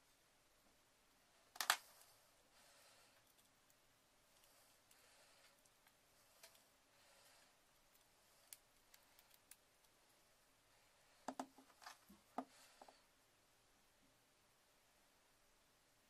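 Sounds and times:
faint handling clicks and scrapes: 0:04.3 - 0:06.7.

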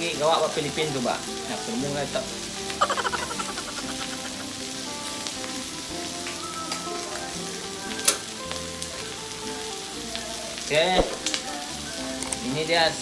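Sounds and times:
meat sizzling in a pan: 0:00.0 - 0:13.0.

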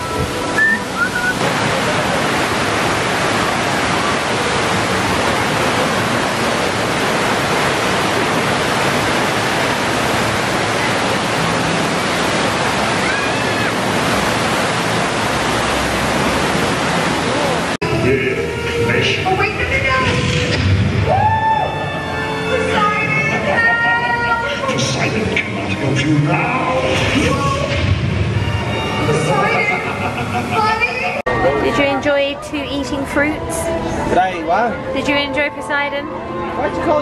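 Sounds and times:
water rushing and swirling: 0:00.0 - 0:35.2.

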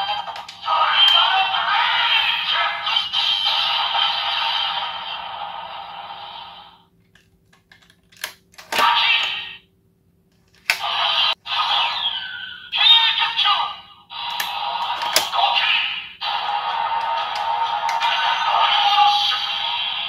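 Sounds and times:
toy electronic sound effects: 0:00.0 - 0:05.0, 0:08.8 - 0:09.6, 0:10.8 - 0:20.0
sharp plastic clicks: 0:07.0 - 0:08.9.

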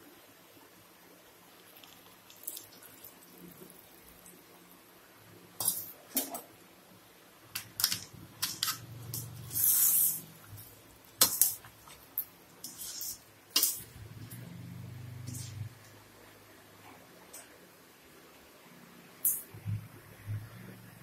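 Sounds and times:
scraping hiss: 0:09.2 - 0:11.6.

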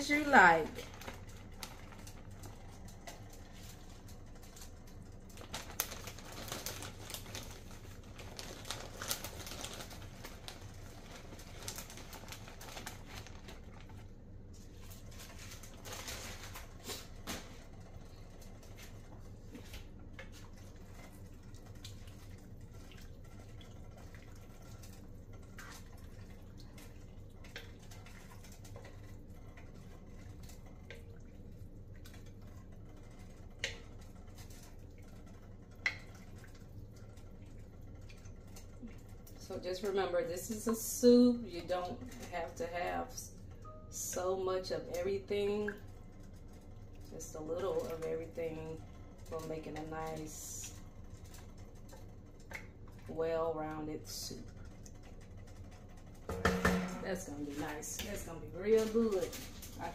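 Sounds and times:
steady low hum: 0:00.0 - 0:59.9
plastic bag rustling: 0:05.4 - 0:17.6.

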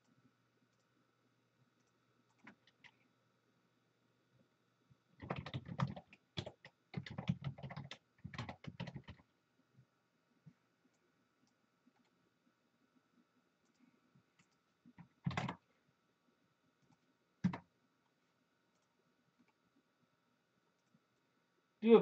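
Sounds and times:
computer keyboard typing: 0:01.8 - 0:03.0, 0:05.2 - 0:09.3, 0:14.4 - 0:15.6, 0:16.8 - 0:17.7.

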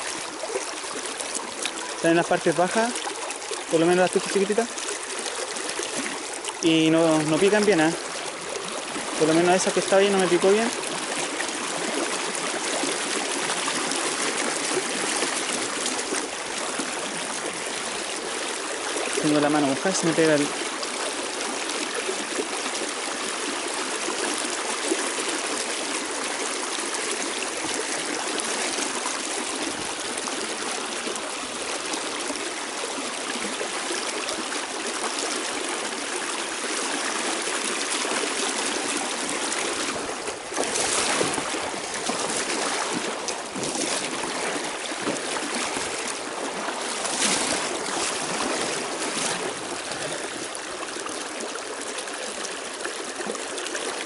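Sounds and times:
river rushing over stones: 0:00.0 - 0:54.0.

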